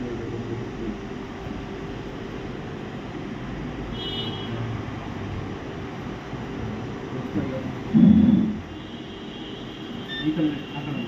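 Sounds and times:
high-pitched electronic beep: 10.1 - 10.5.

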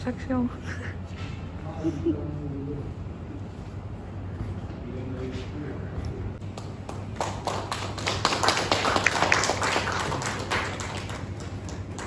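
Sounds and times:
small audience clapping: 6.4 - 12.0.

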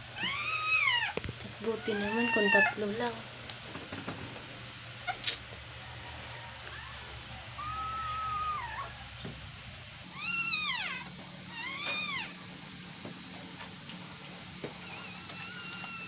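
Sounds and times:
puppy crying: 0.1 - 1.2, 1.8 - 2.8, 6.7 - 9.2, 10.1 - 12.5, 14.7 - 16.0.

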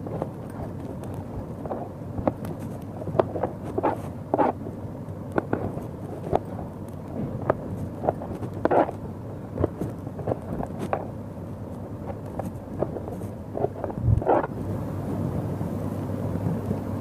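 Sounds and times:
low background noise: 0.0 - 17.0
knife cutting on plastic board: 0.9 - 4.6, 7.3 - 9.0, 12.0 - 14.5.

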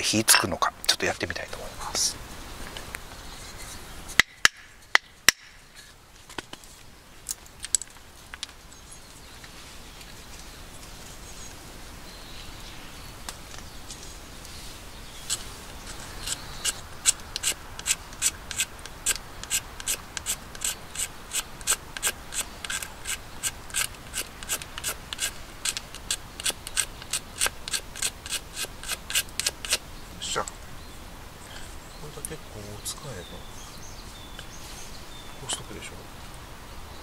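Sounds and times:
knife scraping wood: 15.3 - 29.8.

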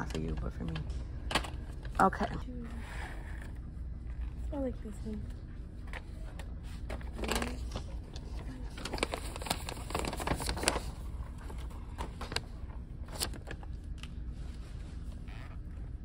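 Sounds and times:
low background hum: 0.0 - 16.0
clicks and rustles of packaging: 5.9 - 12.5.

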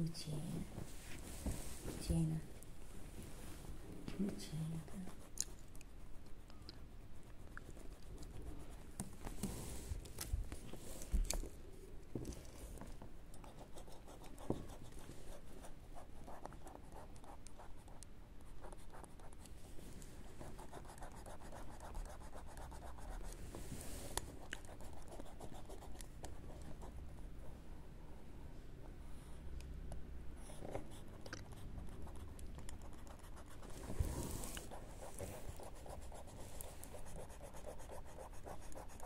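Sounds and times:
pen nib scratching paper: 13.4 - 19.6, 20.4 - 23.4, 24.2 - 27.0, 30.5 - 39.0.

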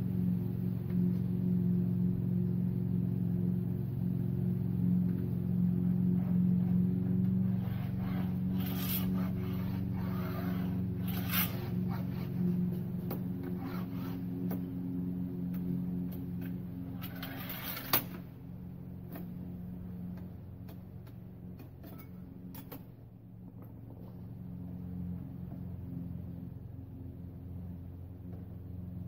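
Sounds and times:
steady low hum: 0.0 - 29.0
glass cutter scratching glass: 7.5 - 12.5, 13.4 - 14.3, 16.9 - 18.2.

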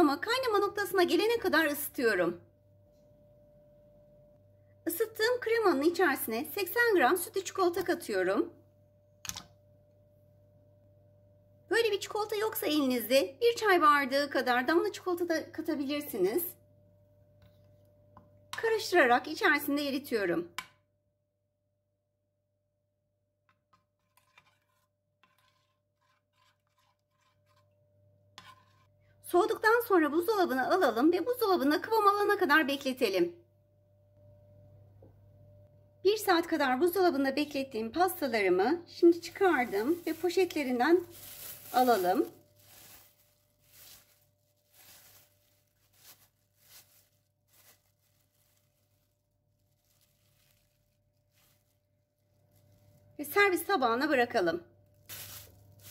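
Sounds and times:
metal spoon scraping saucepan: 23.7 - 27.8, 28.4 - 29.0
plastic bag crinkling: 39.2 - 53.2, 54.9 - 55.9.

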